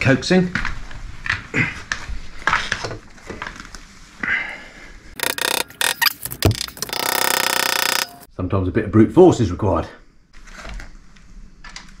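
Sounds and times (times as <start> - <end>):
metal and rubber knocking and rubbing: 5.2 - 8.2.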